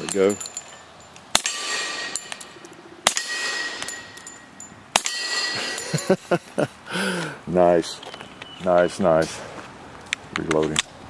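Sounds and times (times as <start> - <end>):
steel targets clanging: 0.0 - 6.2
suppressed pistol shots: 1.3 - 4.0.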